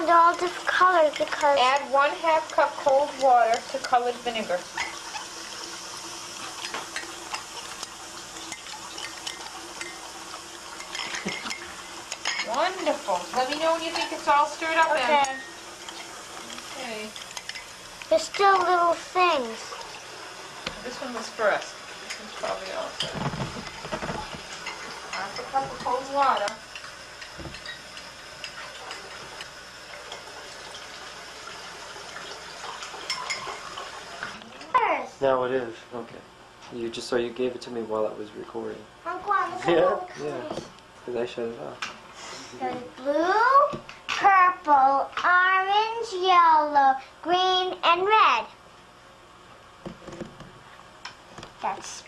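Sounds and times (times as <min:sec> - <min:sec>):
utensil stirring in a cup: 0:00.0 - 0:20.0
tablets fizzing in vinegar: 0:00.0 - 0:34.4.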